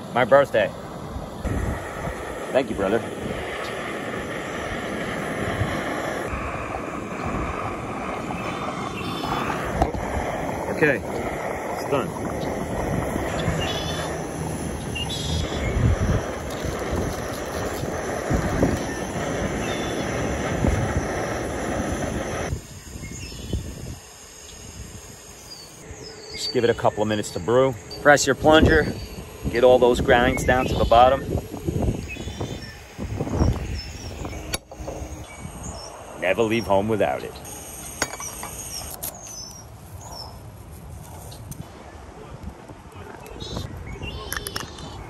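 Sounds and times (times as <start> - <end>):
gas stove burner roaring hiss: 0.0 - 41.8
faint chirps: 11.9 - 16.9, 17.5 - 24.7, 25.3 - 40.4.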